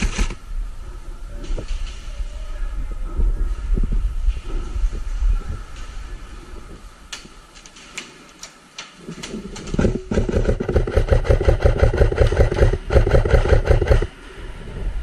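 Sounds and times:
airsoft rifle firing bursts: 0.0 - 0.4, 9.8 - 14.1
sharp clicks: 9.6 - 14.1.

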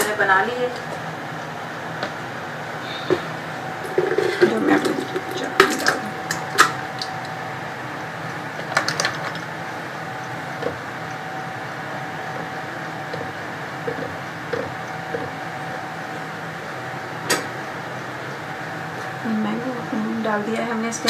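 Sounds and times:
background hum: 0.0 - 21.0.

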